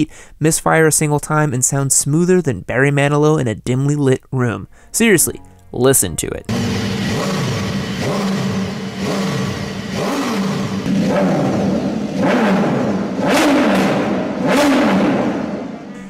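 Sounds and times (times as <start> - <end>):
motorcycle engine revving: 6.5 - 16.0.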